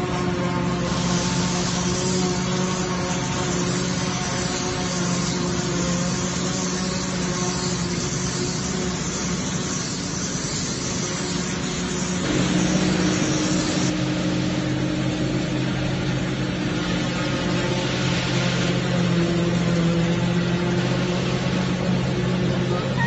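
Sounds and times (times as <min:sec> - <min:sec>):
chopped crop whirring through spout: 0:00.0 - 0:23.0
tractor diesel engine running: 0:11.6 - 0:23.0
forage harvester chopping corn: 0:12.2 - 0:23.0.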